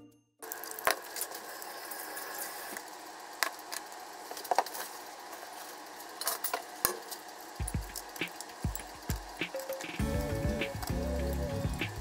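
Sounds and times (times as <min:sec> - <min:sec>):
faint kitchen hiss: 0:00.4 - 0:10.0.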